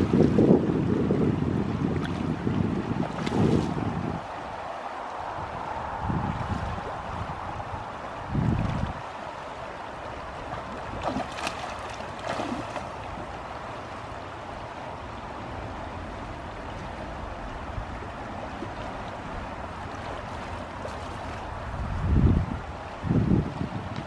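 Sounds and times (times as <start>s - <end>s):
river water rushing: 0.0s - 24.0s
fish splashing in water: 10.5s - 13.2s.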